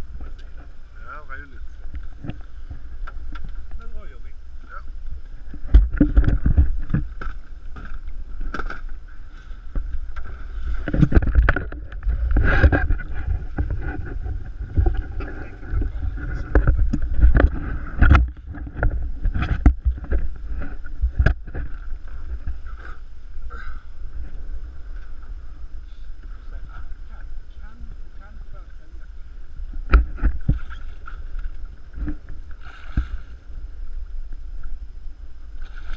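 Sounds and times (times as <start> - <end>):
wind rumble on microphone: 0.0 - 35.9
water slapping against boat: 5.3 - 23.0
knocks and splashes: 5.4 - 9.0, 9.7 - 22.9, 29.8 - 33.4, 35.6 - 35.9.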